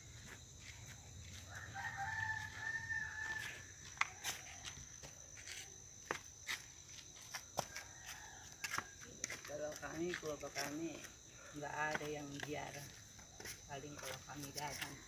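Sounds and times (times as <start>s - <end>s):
high insect drone: 0.0s - 15.0s
faint rooster crowing: 1.4s - 4.8s, 7.6s - 9.1s.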